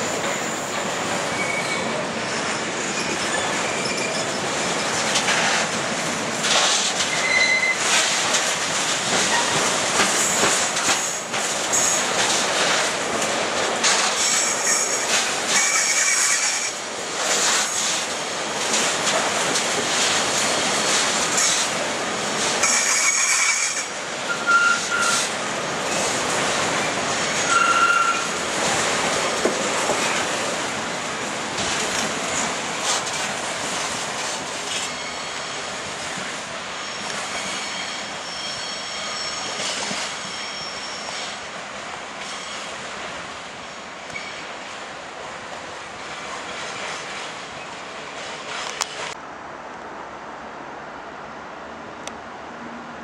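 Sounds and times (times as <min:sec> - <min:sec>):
train wheels clattering over rail joints: 0:00.0 - 0:36.4
high-pitched wheel squeals: 0:01.3 - 0:01.9, 0:02.6 - 0:05.0, 0:07.1 - 0:07.8, 0:22.6 - 0:25.3, 0:27.2 - 0:28.4, 0:36.8 - 0:41.4.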